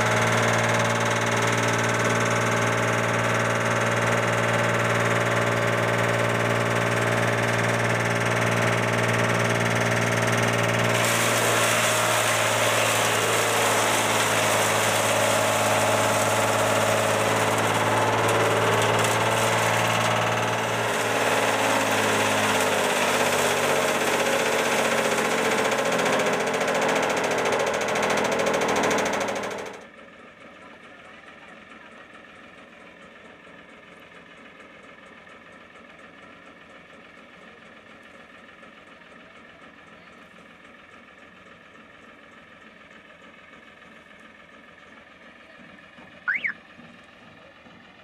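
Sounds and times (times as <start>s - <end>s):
machine grinding branches: 0.0s - 29.9s
tractor engine hum: 0.0s - 48.0s.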